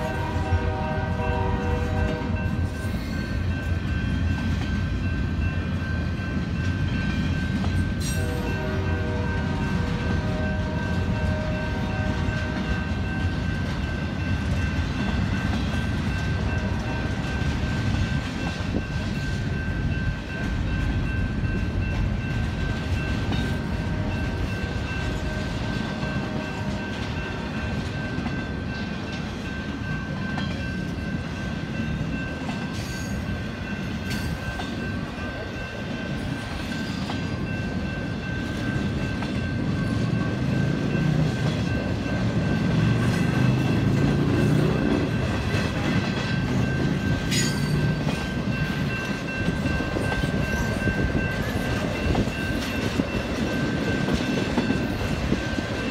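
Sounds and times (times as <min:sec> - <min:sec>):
freight train rumbling past: 0:00.0 - 0:55.9
wheels clattering on rails: 0:00.0 - 0:55.9
high ringing tone: 0:46.2 - 0:55.9.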